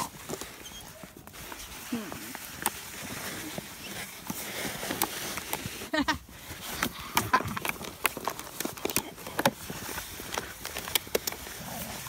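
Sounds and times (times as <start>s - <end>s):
puppies whimpering: 0.0s - 1.2s
puppies scuffling in snow: 0.0s - 12.0s.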